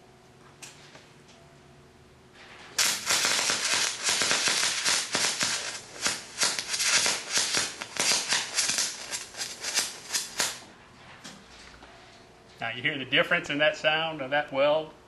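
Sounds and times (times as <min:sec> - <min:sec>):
welding arc crackling and popping: 0:02.8 - 0:10.7.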